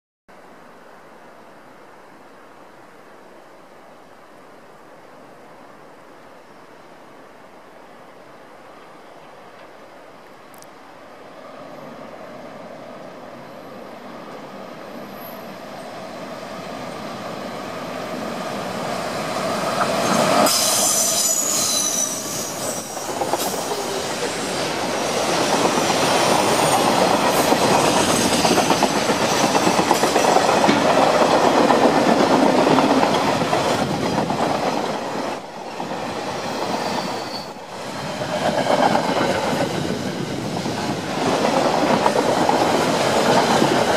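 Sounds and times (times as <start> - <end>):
diesel locomotive passing: 11.2 - 43.9
train wheels rumbling on rails: 15.0 - 43.9
high squeal: 20.0 - 24.8, 36.7 - 37.6.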